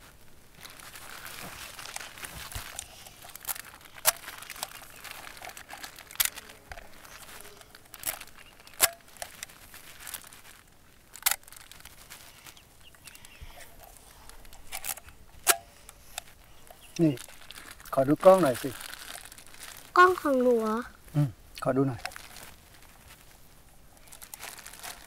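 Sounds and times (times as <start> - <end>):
plastic bag crinkling: 0.0 - 25.0.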